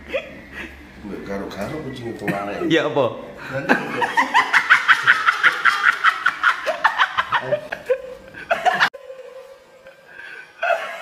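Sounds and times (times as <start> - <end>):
faint steady hum: 0.0 - 11.0
men laughing: 3.4 - 11.0.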